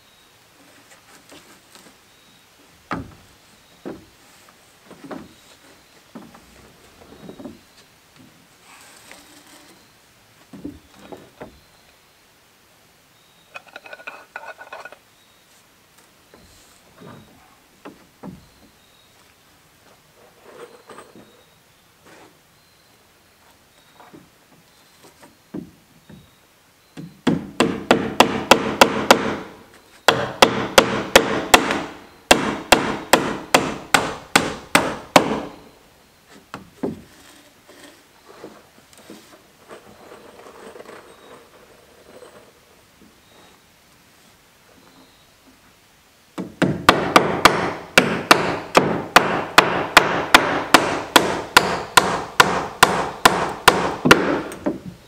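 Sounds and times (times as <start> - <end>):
hammer driving nails into wood: 27.0 - 29.5, 30.1 - 35.6, 46.4 - 54.8.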